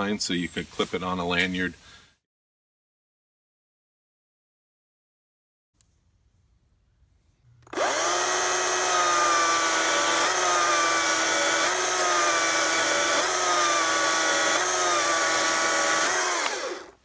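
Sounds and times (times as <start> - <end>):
battery chainsaw cutting log: 7.6 - 17.0.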